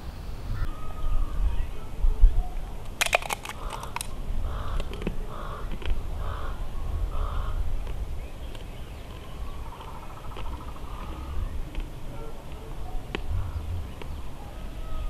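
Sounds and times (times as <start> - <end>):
crab shell cracking: 2.9 - 6.0
crow cawing: 3.5 - 7.7, 9.6 - 11.6
low steady rumble: 4.1 - 15.0.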